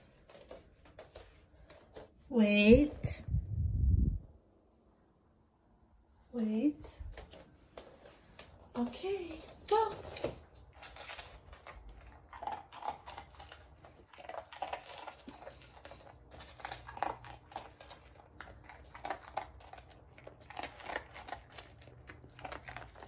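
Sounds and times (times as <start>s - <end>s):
puppy crunching dry kibble: 7.1s - 23.0s.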